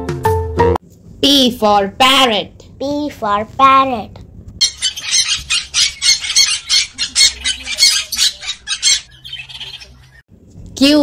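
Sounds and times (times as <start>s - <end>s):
parrot harsh calls: 4.6s - 10.2s.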